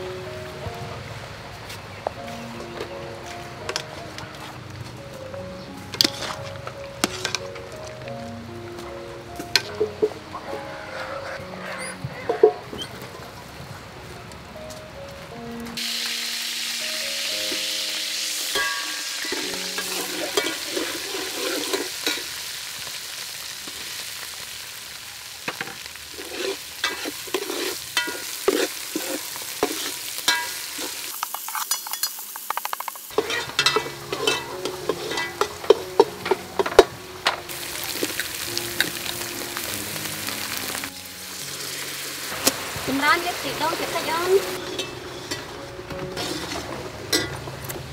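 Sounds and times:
metal ladle scraping and clanking: 0:06.0 - 0:07.6, 0:09.6 - 0:13.0, 0:18.5 - 0:22.3, 0:26.2 - 0:32.3, 0:33.1 - 0:37.4, 0:44.6 - 0:47.8
curry paste sizzling in oil: 0:15.8 - 0:47.9.

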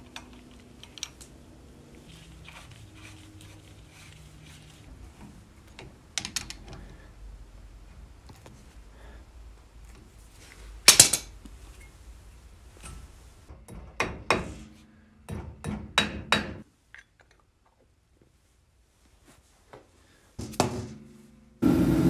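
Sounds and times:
hammer tapping metal: 0:13.5 - 0:16.6.

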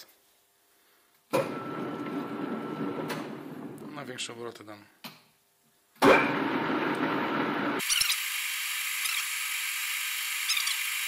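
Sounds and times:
metal lathe running: 0:01.5 - 0:03.9.

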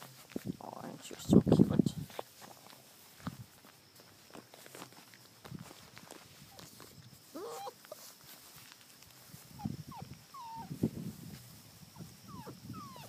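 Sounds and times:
footsteps in grass: 0:00.0 - 0:12.9
puppies whining and yelping: 0:07.3 - 0:08.1, 0:09.4 - 0:10.8, 0:11.9 - 0:13.0.

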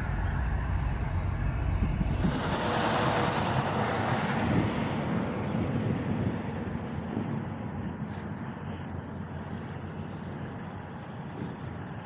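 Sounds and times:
vehicle rushing past: 0:00.0 - 0:05.5
traffic rumble: 0:00.0 - 0:12.0.

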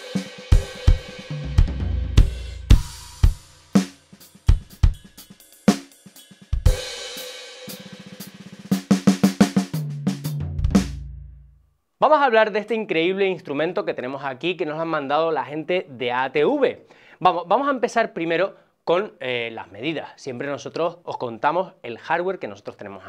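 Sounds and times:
cymbal crashes: 0:00.0 - 0:08.8
electronic drum kit playing: 0:00.0 - 0:11.1
fast tom fill: 0:00.0 - 0:11.3.

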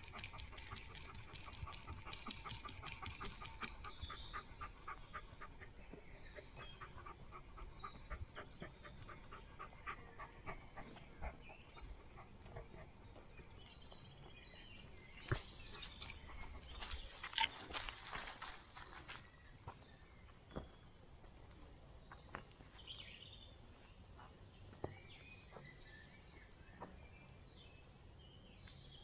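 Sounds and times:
dog panting: 0:00.0 - 0:14.0.

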